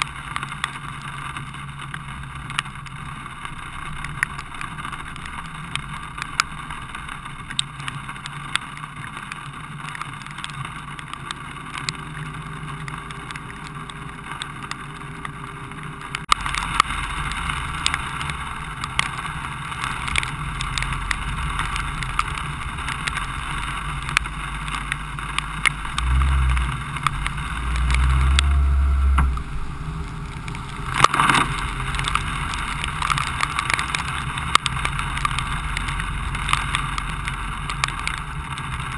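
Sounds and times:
car engine and tyre noise: 0:00.0 - 0:38.9
raindrops ticking on camera: 0:00.0 - 0:38.9
heavy low rumbles: 0:15.6 - 0:38.9.

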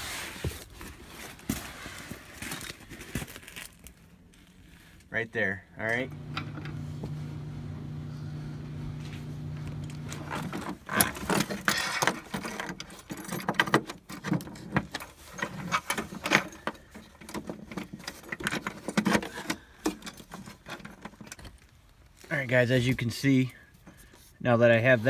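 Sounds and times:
low hum: 0:06.1 - 0:10.6.

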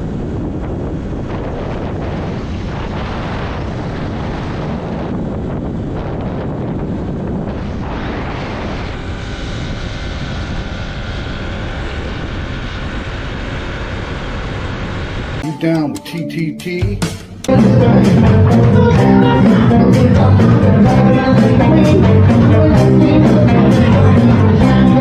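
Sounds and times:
wind buffeting microphone: 0:00.0 - 0:15.4
low vehicle drone: 0:00.0 - 0:16.0, 0:17.4 - 0:25.0
steady higher tones: 0:15.4 - 0:25.0.

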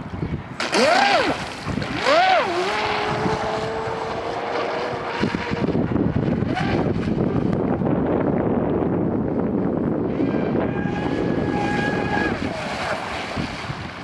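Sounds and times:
boat hull rushing through water: 0:00.0 - 0:14.0
electric motor whining: 0:00.6 - 0:07.0.

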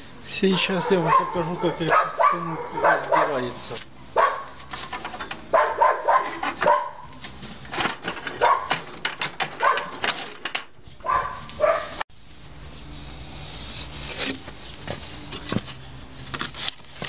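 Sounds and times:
dog barking: 0:00.5 - 0:03.6, 0:04.2 - 0:04.6, 0:05.5 - 0:07.1, 0:08.4 - 0:08.8, 0:09.6 - 0:10.0, 0:11.0 - 0:12.0.

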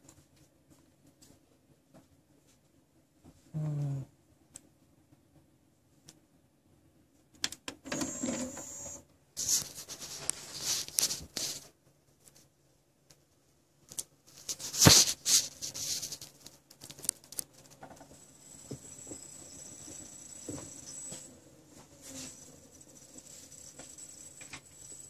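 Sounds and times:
faint high whine: 0:07.8 - 0:10.5, 0:14.5 - 0:25.0
rustling and scraping: 0:08.0 - 0:12.6, 0:13.9 - 0:25.0.

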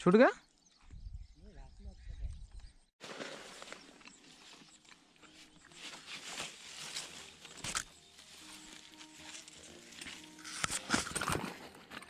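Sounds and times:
grass and leaves rustling: 0:03.0 - 0:12.0.

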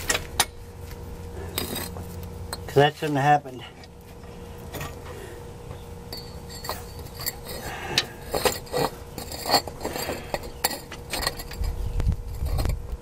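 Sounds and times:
bricks scraping and knocking: 0:06.5 - 0:11.8.

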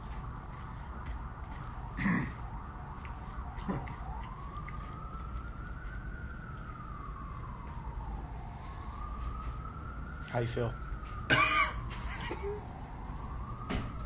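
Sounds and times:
siren wailing: 0:00.0 - 0:14.0.

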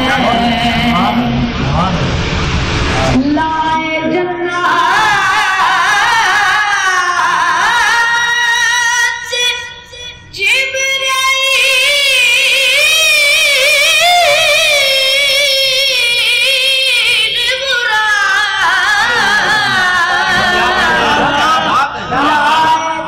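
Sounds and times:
boy chanting devotional verse: 0:00.0 - 0:01.6, 0:03.0 - 0:23.0.

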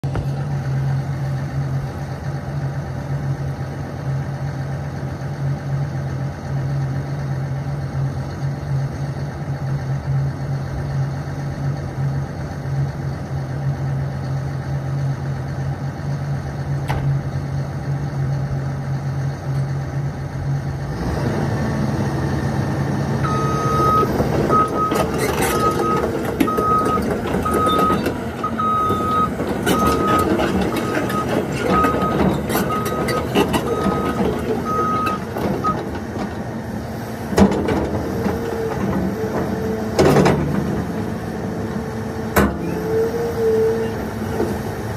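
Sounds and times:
excavator diesel engine: 0:00.0 - 0:44.9
travel alarm beeping: 0:23.2 - 0:33.1, 0:33.7 - 0:35.8
machine clanking: 0:24.1 - 0:36.5.

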